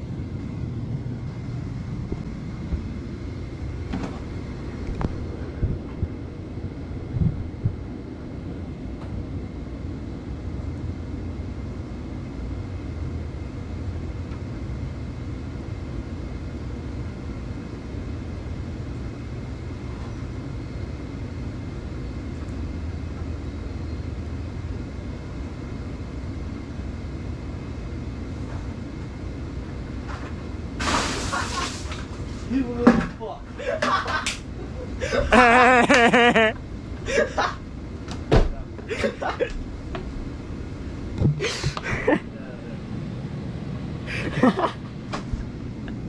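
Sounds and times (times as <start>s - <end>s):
steady low rumbling: 0.0s - 13.9s, 34.4s - 46.0s.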